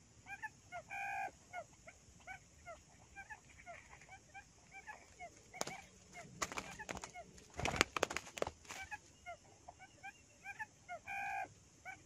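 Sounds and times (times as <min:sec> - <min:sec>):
quail chirping: 0:00.0 - 0:12.0
rustles and knocks: 0:05.6 - 0:08.9.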